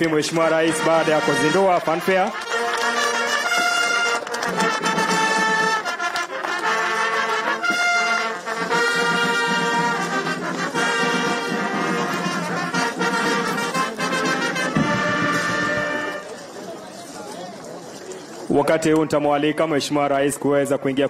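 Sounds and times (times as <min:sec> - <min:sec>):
brass band music: 0:00.0 - 0:16.4.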